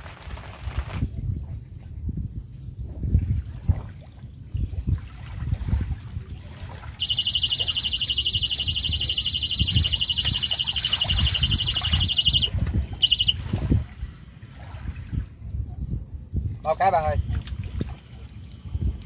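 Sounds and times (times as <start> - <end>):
wind rumble on microphone: 0.0 - 19.0
bite alarm beeping: 7.0 - 13.4.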